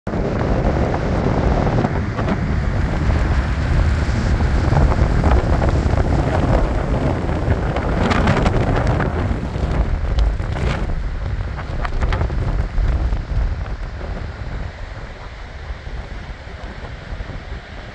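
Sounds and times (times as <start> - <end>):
wind buffeting microphone: 0.1 - 17.9.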